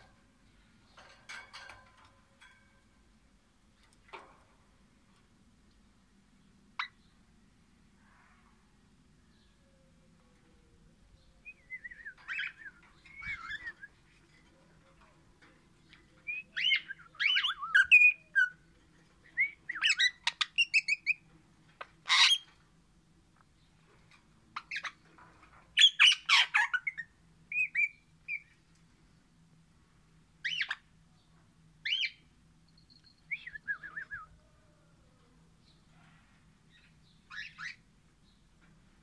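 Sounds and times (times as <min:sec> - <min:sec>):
parakeet chattering and whistling: 0:16.5 - 0:18.6, 0:30.4 - 0:30.8.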